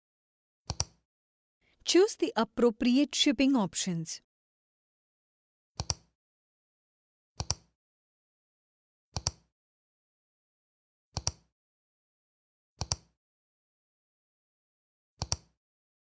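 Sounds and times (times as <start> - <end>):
computer mouse clicks: 0.7 - 1.0, 5.8 - 6.1, 7.4 - 7.7, 9.2 - 9.5, 11.2 - 11.5, 12.8 - 13.2, 15.2 - 15.6.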